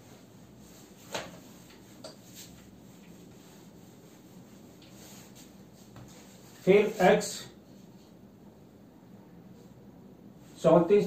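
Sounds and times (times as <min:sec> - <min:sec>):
whiteboard wiping: 0:00.0 - 0:08.2.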